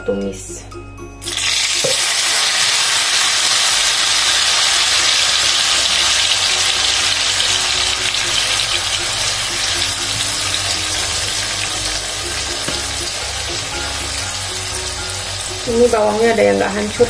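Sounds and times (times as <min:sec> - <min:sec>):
paste sizzling in hot oil: 0:01.2 - 0:17.0.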